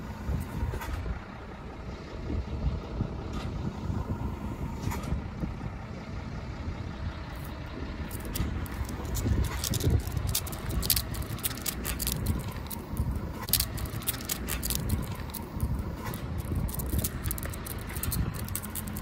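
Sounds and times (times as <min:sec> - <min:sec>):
low rumble: 0:00.0 - 0:19.0
dog claws clicking: 0:08.1 - 0:19.0.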